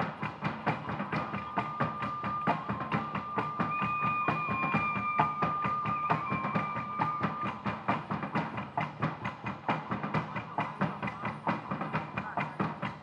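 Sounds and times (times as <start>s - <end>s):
fast percussion strikes: 0.0s - 13.0s
held high melodic note: 1.2s - 8.1s.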